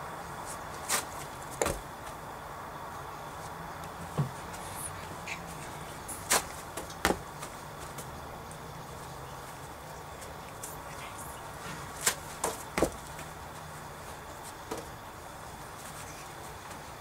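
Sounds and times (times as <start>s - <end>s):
thuds and swishes of a kick: 6.2s - 8.0s, 11.8s - 13.4s.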